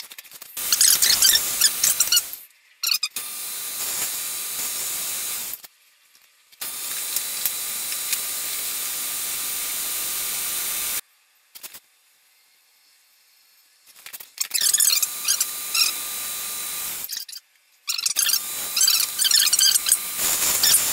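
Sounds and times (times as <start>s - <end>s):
lathe cutting wood hiss: 0.6s - 2.4s, 3.2s - 5.6s, 6.6s - 11.0s, 14.7s - 17.1s, 18.3s - 20.9s.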